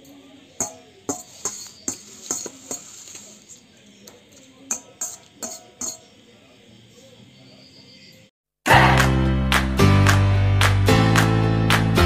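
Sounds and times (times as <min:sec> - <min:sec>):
metal utensil clinking in pot: 0:00.0 - 0:03.0, 0:04.3 - 0:06.1.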